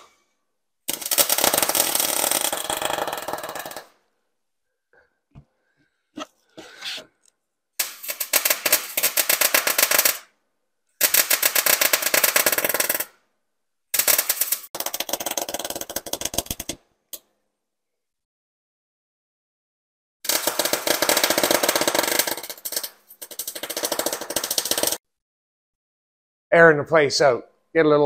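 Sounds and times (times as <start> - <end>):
arc welder crackling: 0.9 - 3.9, 7.8 - 10.3, 14.0 - 16.7, 20.3 - 25.0.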